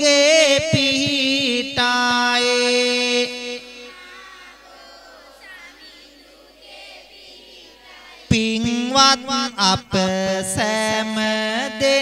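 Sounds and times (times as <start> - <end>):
man chanting: 0.0 - 4.2, 8.3 - 12.0
faint singing voices: 0.0 - 12.0.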